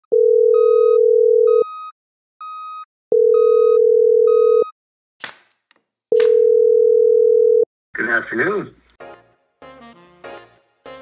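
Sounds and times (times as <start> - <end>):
telephone ringing tone: 0.1 - 1.7, 3.1 - 4.7, 6.4 - 7.7.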